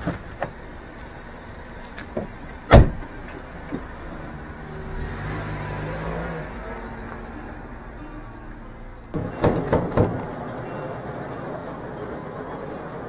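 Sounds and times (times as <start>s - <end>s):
car engine pulling away: 0.6s - 13.0s
car door slamming: 2.7s - 3.1s, 9.2s - 10.3s.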